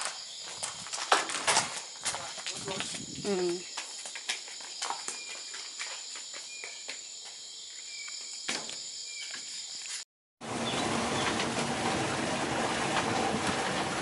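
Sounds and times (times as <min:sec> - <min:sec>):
crickets trilling: 0:00.0 - 0:10.0
vehicle rumble: 0:10.4 - 0:14.0.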